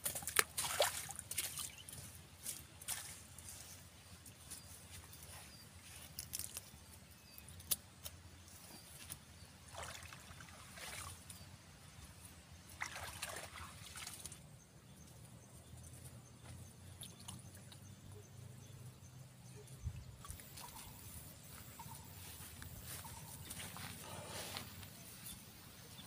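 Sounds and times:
water sloshing and splashing: 0.0 - 3.2, 9.6 - 11.4, 12.7 - 14.5.

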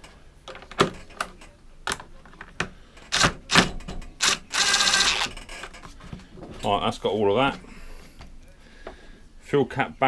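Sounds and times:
screwdriver rattling buzz: 3.1 - 5.5.

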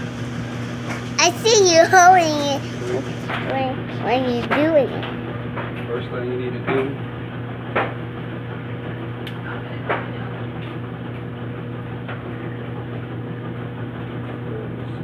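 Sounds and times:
low electrical hum: 0.0 - 10.3.

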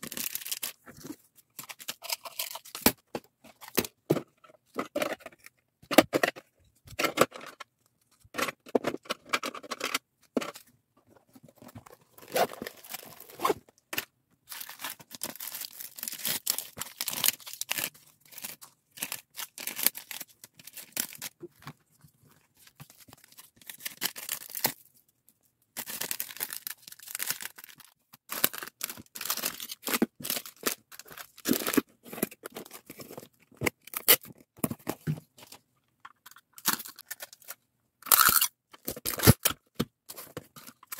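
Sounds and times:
plastic bags crinkling: 0.0 - 1.0, 11.8 - 13.6, 14.5 - 21.4, 25.8 - 31.8.

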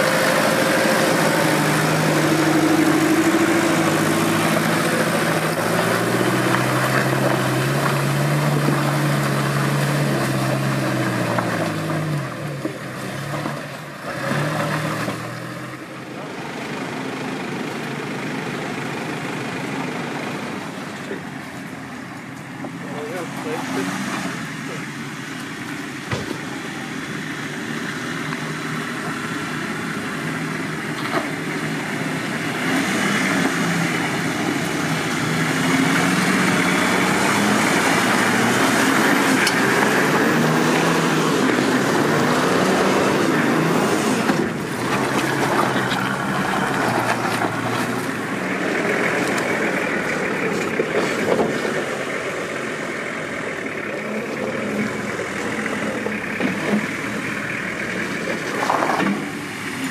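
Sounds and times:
off-road vehicle engine revving: 0.0 - 59.9
sharp knocks: 26.1 - 26.5.

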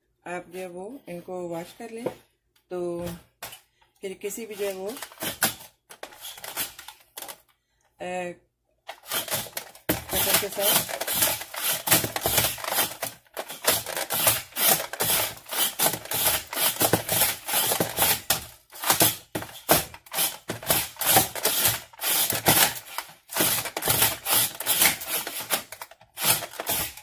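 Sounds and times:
plastic slicer clacking: 4.6 - 7.4, 8.9 - 27.0.

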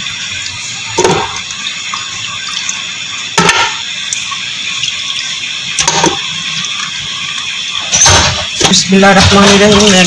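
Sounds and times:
trotters clunking into metal pot: 1.0 - 1.4, 3.4 - 3.8, 5.8 - 6.3, 7.8 - 10.0.

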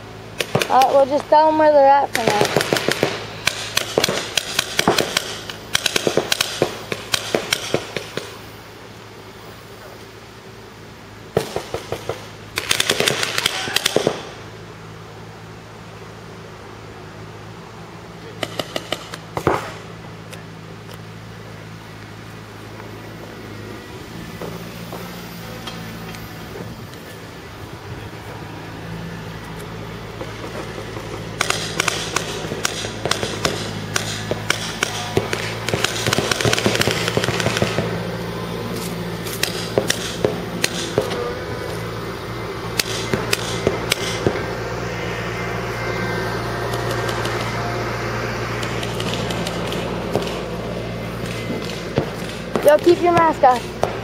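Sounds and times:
steady low hum: 0.0 - 54.0
paintball markers firing: 2.1 - 8.4, 11.4 - 14.4, 18.4 - 20.4, 30.2 - 38.0, 38.8 - 41.3, 42.7 - 44.4, 48.6 - 50.6, 51.2 - 54.0.

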